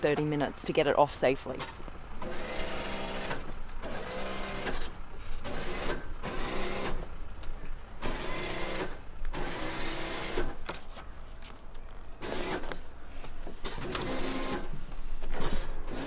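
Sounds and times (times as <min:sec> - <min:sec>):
electric winch motor whining: 0:02.2 - 0:07.2, 0:08.0 - 0:10.6, 0:12.2 - 0:12.7, 0:13.6 - 0:16.0.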